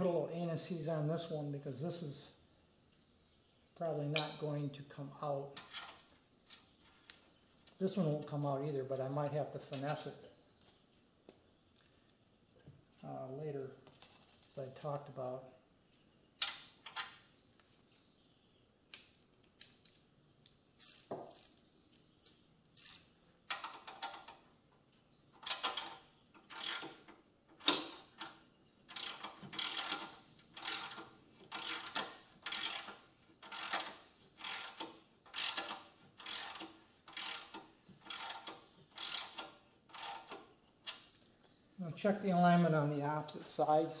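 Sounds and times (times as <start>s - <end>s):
hand ratchet clicking: 22.3s - 24.3s, 25.4s - 27.0s, 28.9s - 41.1s.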